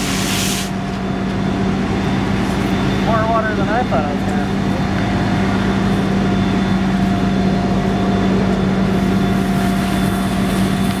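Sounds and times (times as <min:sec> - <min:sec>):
loud hiss of steam: 0:00.0 - 0:00.8
constant low hum: 0:00.0 - 0:11.0.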